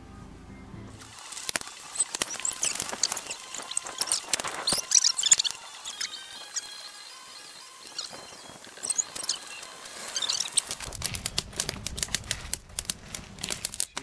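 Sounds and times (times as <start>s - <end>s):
campfire crackling and popping: 1.0s - 14.0s
low rumble of flame: 8.0s - 14.0s.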